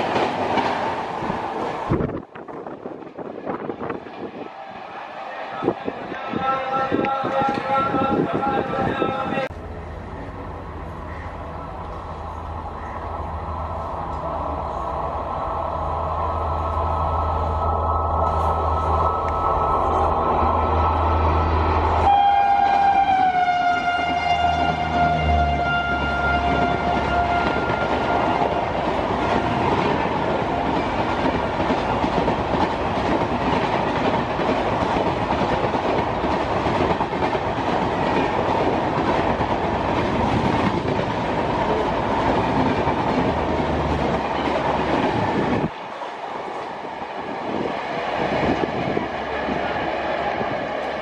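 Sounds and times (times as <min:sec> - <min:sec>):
distant train rumble: 0:00.0 - 0:51.0
express train rushing past: 0:00.0 - 0:51.0
train horn: 0:22.0 - 0:28.8.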